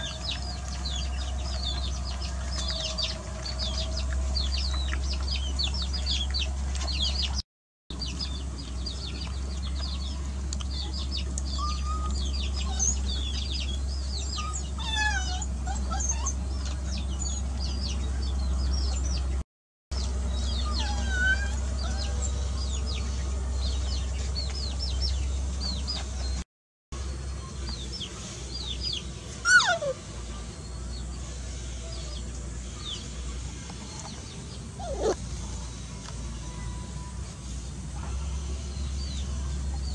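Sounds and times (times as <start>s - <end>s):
chicks peeping: 0.0s - 19.4s, 20.0s - 26.4s, 27.3s - 29.8s, 38.0s - 39.9s
steady low hum: 0.0s - 19.4s, 20.0s - 26.4s
chickens clucking: 32.1s - 36.2s.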